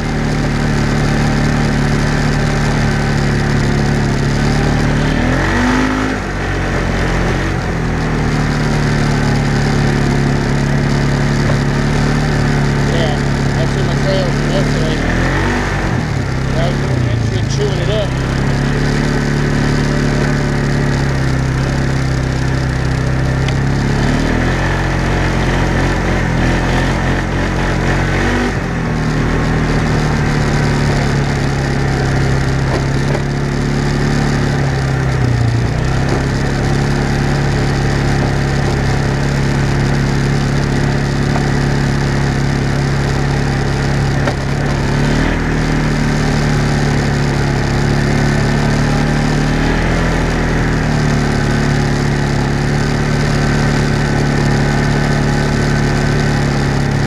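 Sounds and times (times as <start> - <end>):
off-road vehicle engine: 0.0 - 57.0
rumble of ride: 0.0 - 57.0.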